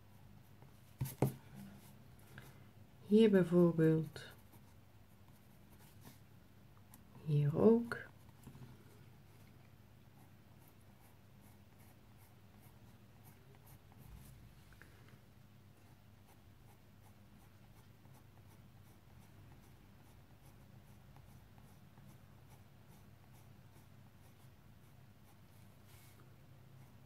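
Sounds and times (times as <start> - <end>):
low steady hum: 0.0 - 27.0
pencil scratching on paper: 10.1 - 14.4, 15.8 - 26.2.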